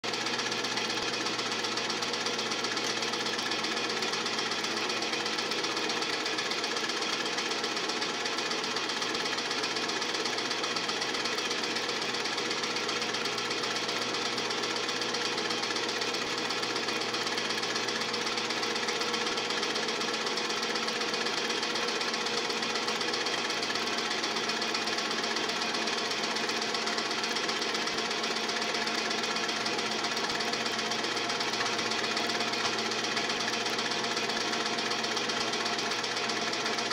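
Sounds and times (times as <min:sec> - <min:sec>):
film projector clattering: 0:00.1 - 0:36.9
projector hum: 0:28.6 - 0:36.6.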